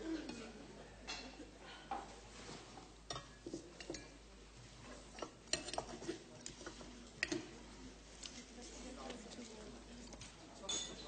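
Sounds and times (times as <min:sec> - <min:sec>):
cutlery clinking on plate: 0:03.1 - 0:04.2, 0:05.2 - 0:07.5, 0:10.6 - 0:11.0.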